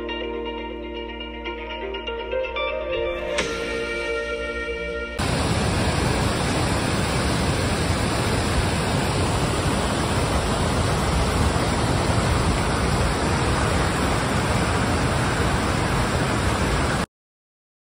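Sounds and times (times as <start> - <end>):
guitar tune: 0.0 - 5.2
waterfall rushing: 5.2 - 17.1.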